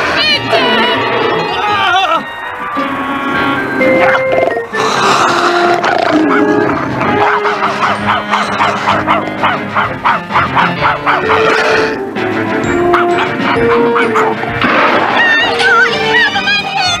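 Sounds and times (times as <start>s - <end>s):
background music: 0.0s - 17.0s
cartoon dog yelping and barking: 5.8s - 11.6s, 12.9s - 14.4s.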